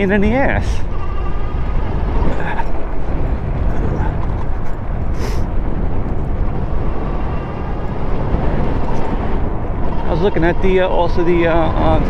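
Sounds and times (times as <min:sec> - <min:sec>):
road and tyre noise: 0:00.0 - 0:12.0
wind buffeting microphone: 0:00.0 - 0:12.0.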